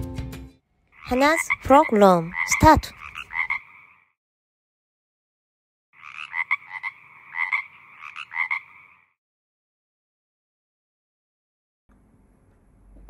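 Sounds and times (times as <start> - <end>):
frog croaking: 0.8 - 4.2, 6.0 - 9.2.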